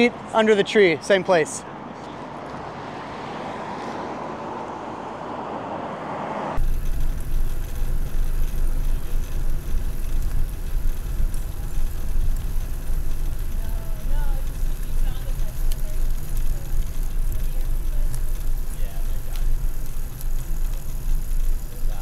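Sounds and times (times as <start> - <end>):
car passing with tyre noise: 0.0 - 22.0
wind buffeting microphone: 6.6 - 22.0.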